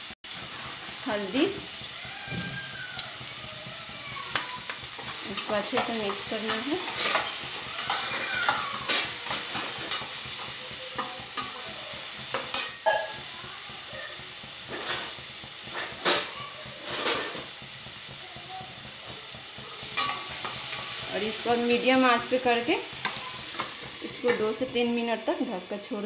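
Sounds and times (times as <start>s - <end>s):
food sizzling in oil: 0.0s - 26.0s
spatula scraping a metal pan: 4.3s - 11.7s, 12.3s - 13.2s, 14.7s - 17.5s, 19.9s - 24.9s.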